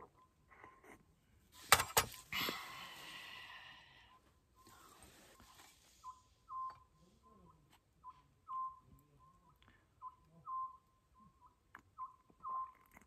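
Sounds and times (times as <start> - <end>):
owl whistled call: 5.5 - 6.9, 8.0 - 12.8.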